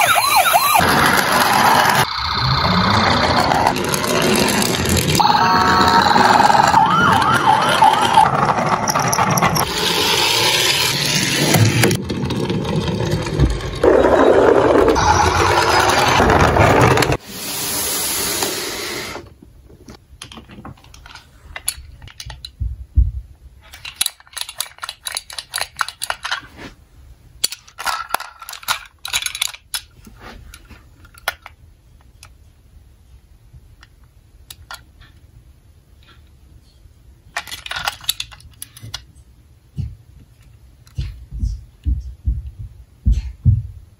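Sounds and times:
toy electronic siren: 0.0s - 0.9s, 5.2s - 8.7s
plastic toy cars clattering: 0.8s - 2.1s, 3.1s - 5.2s, 5.9s - 17.2s, 19.9s - 22.6s, 23.6s - 26.5s, 27.4s - 32.3s, 34.5s - 35.2s, 37.3s - 39.1s.

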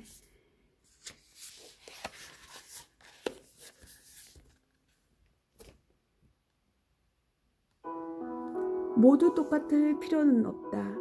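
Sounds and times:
book pages rustling: 0.8s - 5.9s
piano music: 7.8s - 11.0s.

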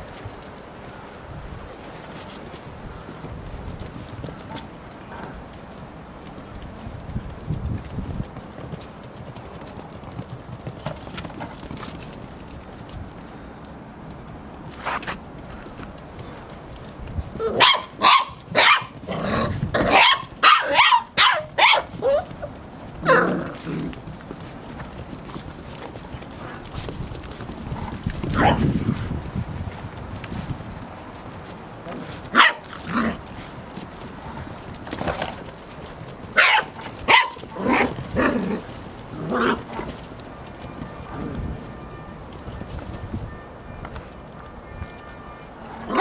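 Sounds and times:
puppies barking and yipping: 17.2s - 29.1s, 31.4s - 42.9s, 43.9s - 46.0s
puppy yapping: 17.4s - 23.6s, 36.3s - 38.6s.

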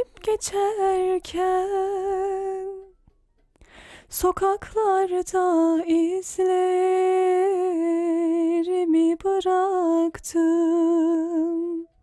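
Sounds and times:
woman singing: 0.0s - 3.0s, 4.1s - 12.0s
short breath: 3.6s - 4.1s.

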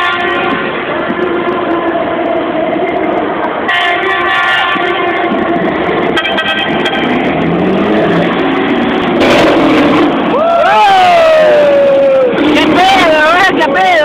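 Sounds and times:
air horn blasts: 0.0s - 2.1s, 3.6s - 7.3s
truck engine passing by: 5.0s - 13.7s.

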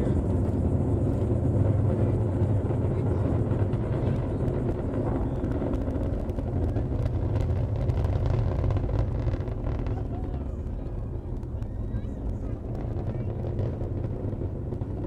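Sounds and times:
distant rocket launch roar: 0.0s - 15.0s
faint crackle: 3.6s - 15.0s.

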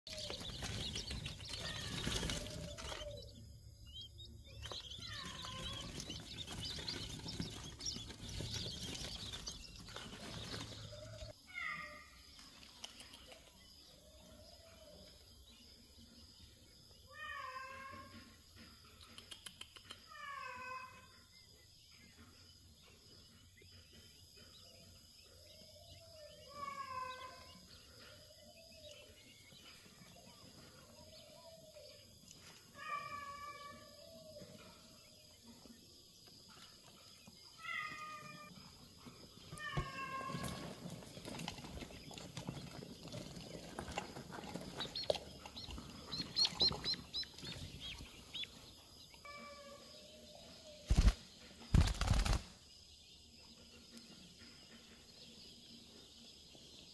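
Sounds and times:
quail chicks peeping: 0.0s - 56.9s
drawn-out pitched bird call: 0.1s - 12.1s.

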